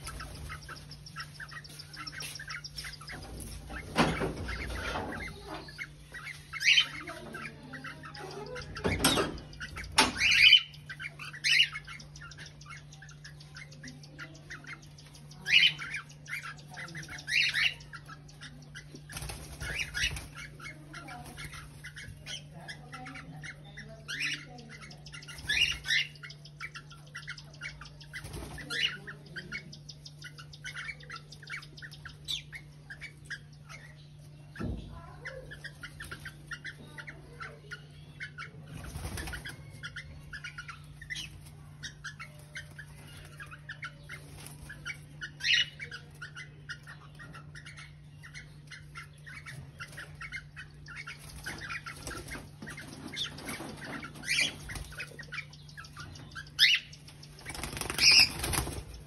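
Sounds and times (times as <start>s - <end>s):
wings flapping: 0.0s - 6.2s, 19.0s - 22.1s, 38.7s - 39.8s, 51.1s - 55.3s, 56.6s - 59.0s
twittering chirps: 0.0s - 59.0s.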